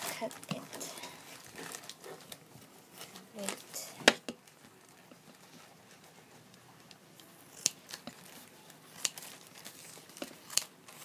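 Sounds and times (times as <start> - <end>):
scissors snipping plastic bag: 7.5 - 11.0.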